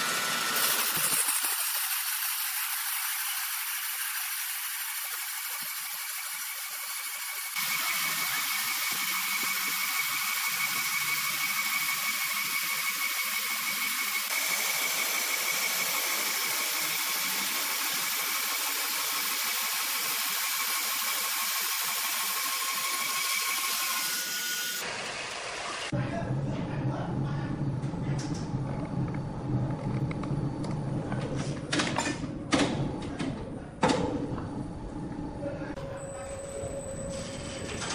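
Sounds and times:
band saw cutting log: 0.0s - 25.9s.

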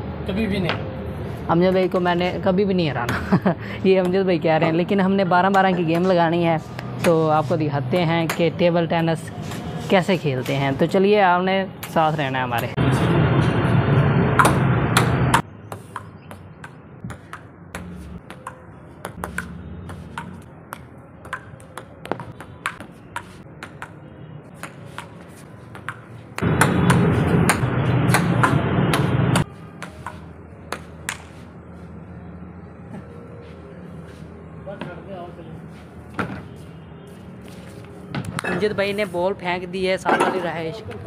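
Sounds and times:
loud rushing noise: 12.8s - 15.4s, 26.4s - 29.7s
ping-pong ball clicking: 15.7s - 24.0s.

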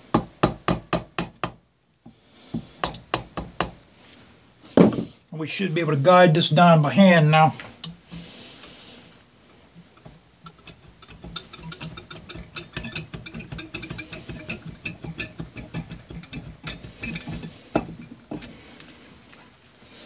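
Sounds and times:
metal-on-metal clicking: 10.0s - 18.5s.

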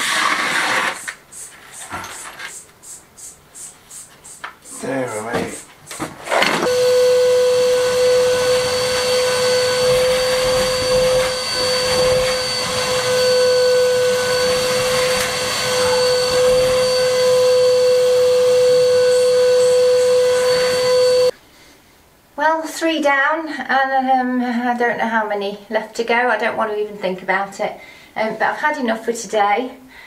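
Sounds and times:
vacuum cleaner motor whine: 6.3s - 21.4s.

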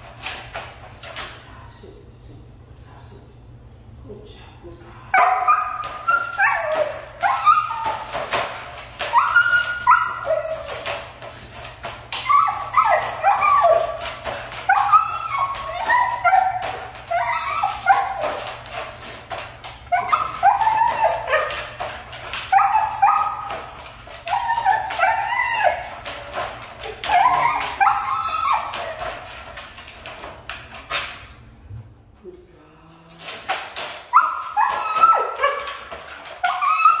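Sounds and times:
dog whining and yipping: 5.2s - 11.0s, 12.1s - 30.2s, 34.0s - 37.0s.

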